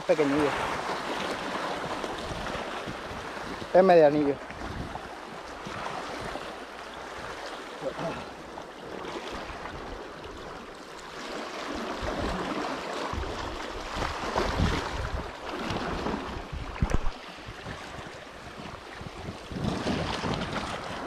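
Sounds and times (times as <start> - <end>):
sea waves washing on shore: 0.0 - 21.0
wind buffeting microphone: 0.4 - 6.4, 12.0 - 21.0.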